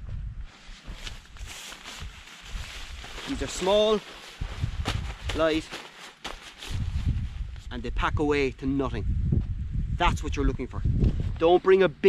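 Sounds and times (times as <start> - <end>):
low rumbling thuds: 0.0 - 0.5, 9.1 - 10.1
jacket fabric rustling: 0.5 - 7.7.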